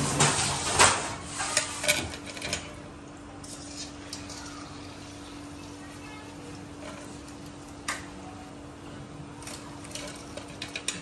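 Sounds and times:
food frying in oil: 3.3 - 8.6
metal utensil scraping frying pan: 3.4 - 4.9.

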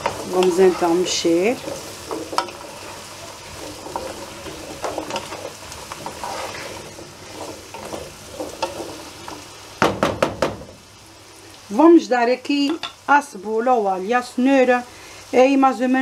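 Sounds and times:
wooden spoon scraping a pan: 0.0 - 9.6
vegetables sizzling in oil: 0.0 - 16.0.

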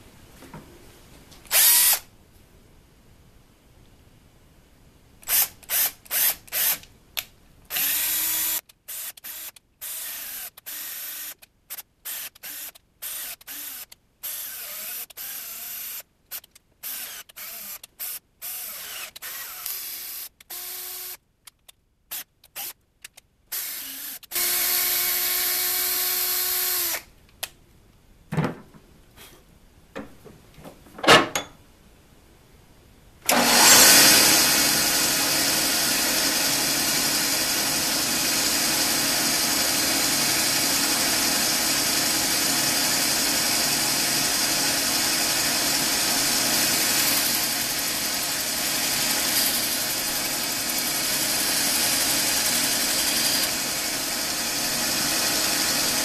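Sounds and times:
cordless drill spinning: 1.5 - 2.0, 5.3 - 6.8, 7.7 - 11.4, 12.0 - 21.2, 22.1 - 22.8, 23.5 - 27.1, 33.3 - 56.0
band saw running: 33.3 - 56.0
shop vacuum running: 33.3 - 56.0.

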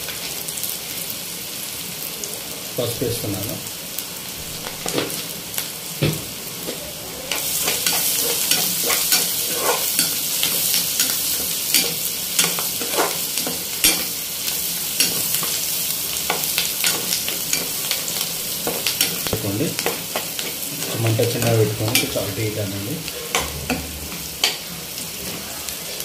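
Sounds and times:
vegetables sizzling in oil: 0.0 - 26.0
spatula scraping pan: 6.6 - 26.0.

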